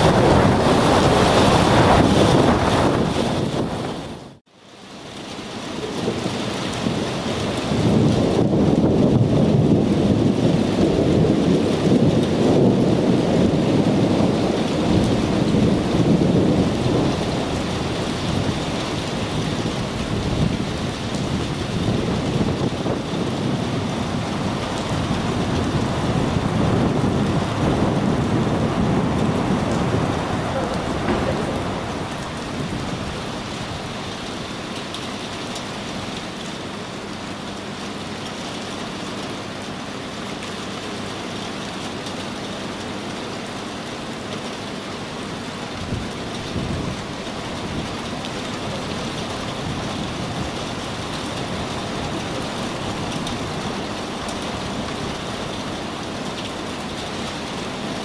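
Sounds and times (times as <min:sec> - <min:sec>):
low rumble: 0:24.2 - 0:34.0.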